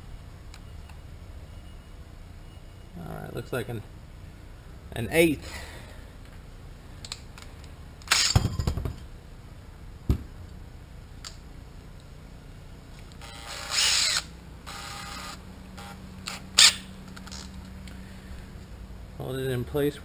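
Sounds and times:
cordless drill running: 13.2 - 16.0.

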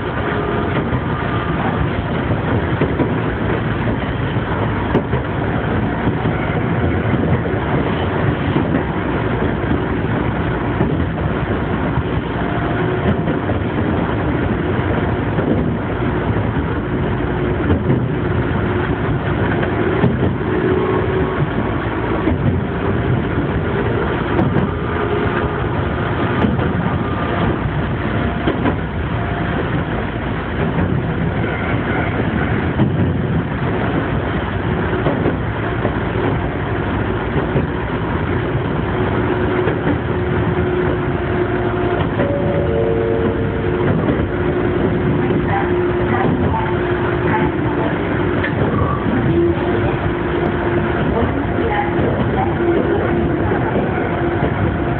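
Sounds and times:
train wheels rumbling on rail: 0.0 - 54.9
faint whine: 40.5 - 54.9.

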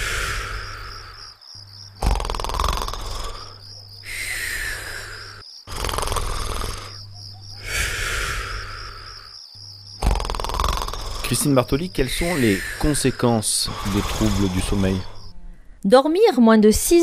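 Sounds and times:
person snoring: 0.0 - 1.4, 2.0 - 7.0, 7.6 - 9.4, 10.0 - 15.3
crickets chirping: 0.0 - 17.0.

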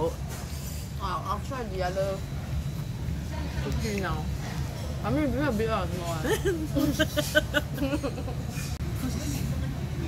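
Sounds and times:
steady low background hum: 0.0 - 10.0.

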